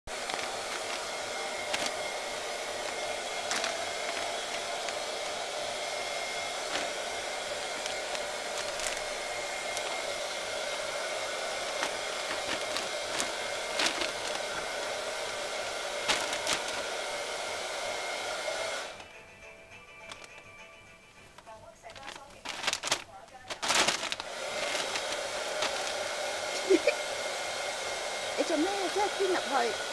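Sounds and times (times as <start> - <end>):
plastic bag crinkling: 0.1 - 15.2, 15.9 - 17.1, 21.4 - 26.8
blower whoosh with faint hum: 0.1 - 19.0, 23.7 - 29.9.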